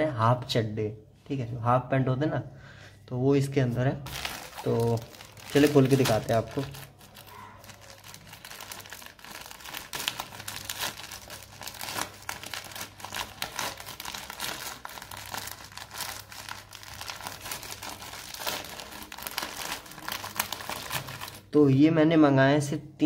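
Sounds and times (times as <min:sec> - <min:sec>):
plastic bag crinkling and tearing: 0:04.0 - 0:21.6.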